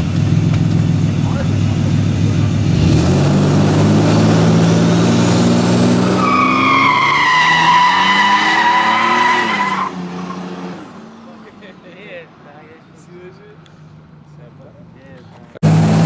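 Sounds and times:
engine revving: 0.0s - 11.3s, 15.6s - 16.0s
tyre squeal: 6.0s - 10.3s.

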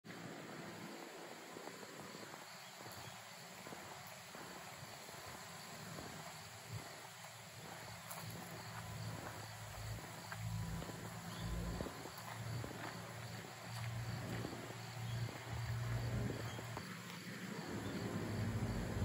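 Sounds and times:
faint outdoor background noise: 0.0s - 19.0s
low rumble: 13.8s - 16.9s, 17.6s - 19.0s.

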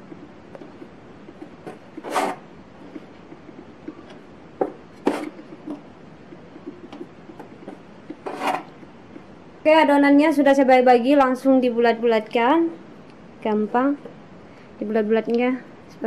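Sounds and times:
bench scraper on wooden board: 1.5s - 2.4s, 4.6s - 5.8s, 8.1s - 8.7s.

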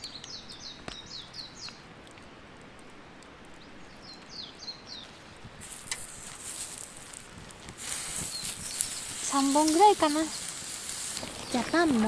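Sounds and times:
songbird whistling: 8.2s - 10.4s.

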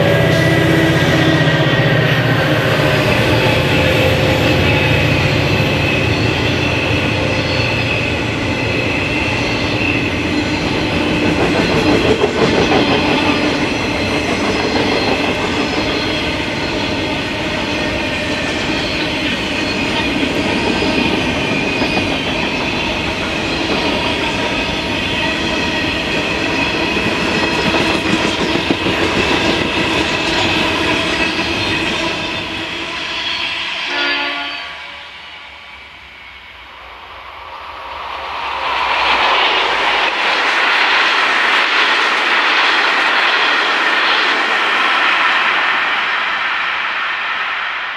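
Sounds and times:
high wheel squeal: 0.0s - 46.1s
train wheels rumbling on rail: 0.0s - 47.9s.

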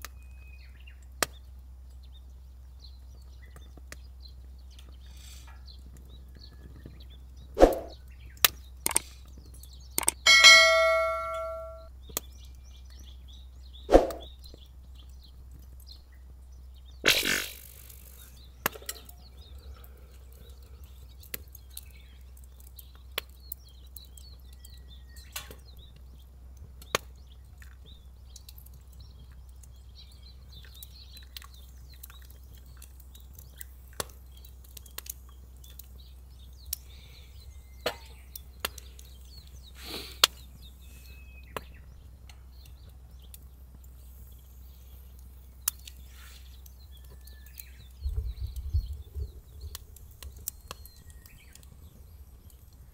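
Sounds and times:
low fire rumble: 0.0s - 10.0s, 11.8s - 17.0s, 17.8s - 52.9s
wood fire pops and snaps: 1.0s - 2.0s, 3.0s - 10.3s, 13.8s - 16.0s, 16.9s - 40.8s, 41.5s - 44.4s, 45.1s - 52.9s
faint bird chirps: 10.2s - 14.6s, 28.0s - 42.8s, 43.9s - 52.9s.

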